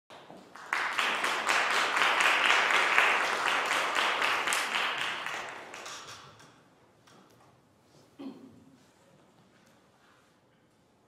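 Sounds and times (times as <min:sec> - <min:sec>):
audience applauding: 0:00.1 - 0:06.2.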